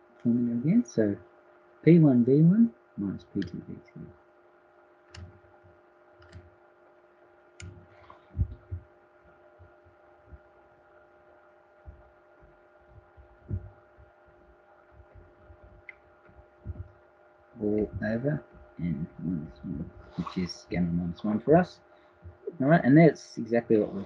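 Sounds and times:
electrical hum: 0.0s - 24.0s
stylus thumps and clicks on tablet: 5.1s - 6.6s, 7.6s - 10.7s, 11.8s - 17.0s.

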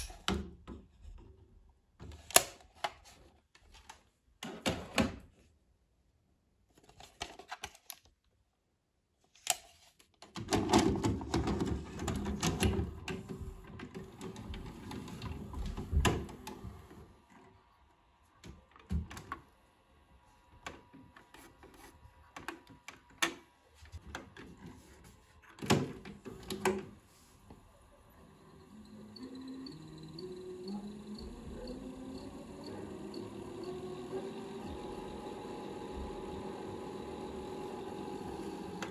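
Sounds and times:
cassette loading mechanism whirring: 28.2s - 38.9s.

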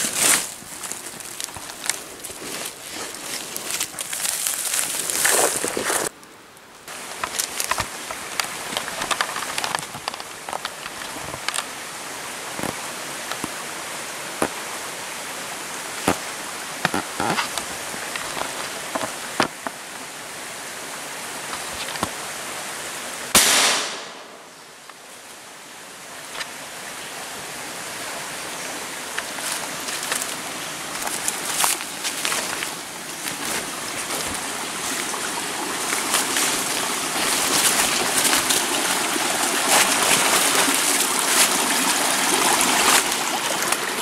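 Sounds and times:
dry leaves and twigs crackling: 0.0s - 11.8s, 16.0s - 19.9s, 29.0s - 44.0s
steady background hiss: 0.0s - 44.0s
gunshot: 23.3s - 24.4s.

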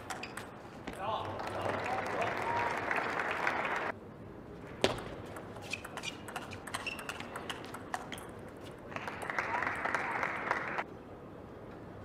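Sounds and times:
crowd applauding: 1.3s - 3.9s, 8.9s - 10.8s
table tennis ball clicking: 5.3s - 8.4s
shoes squeaking on floor: 5.5s - 8.2s.

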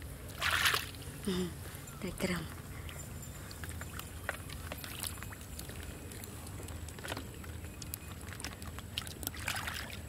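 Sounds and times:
low steady hum: 0.0s - 10.0s
squelching in muddy water: 0.2s - 1.2s, 3.4s - 10.0s.

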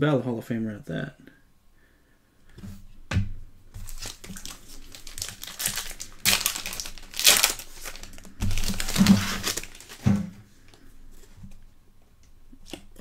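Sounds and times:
foil wrapper crinkling and tearing: 3.8s - 10.1s.

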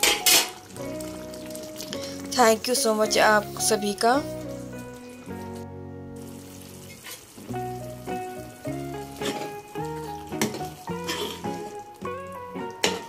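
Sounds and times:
ladle stirring: 0.0s - 5.6s, 9.0s - 13.0s
gravy sizzling in a pan: 0.0s - 13.0s
instrumental music with held notes: 0.0s - 13.0s.

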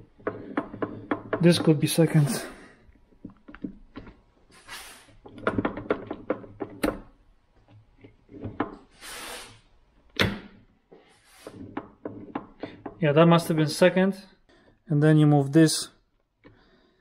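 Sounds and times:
short hiss-like rushes: 4.6s - 5.1s, 9.0s - 9.7s.

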